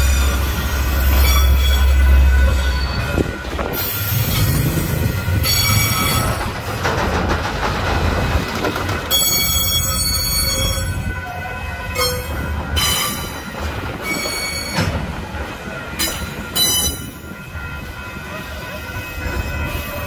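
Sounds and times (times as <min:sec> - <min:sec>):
train wheels squealing: 0:00.0 - 0:03.2, 0:03.8 - 0:06.5, 0:14.0 - 0:14.9
low rumble of wagons: 0:00.0 - 0:20.0.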